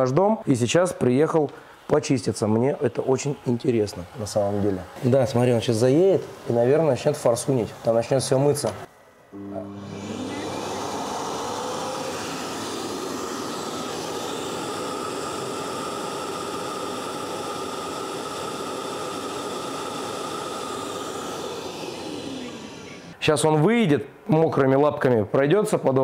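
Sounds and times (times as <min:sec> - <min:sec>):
robot vacuum motor whirring: 0:09.4 - 0:23.2.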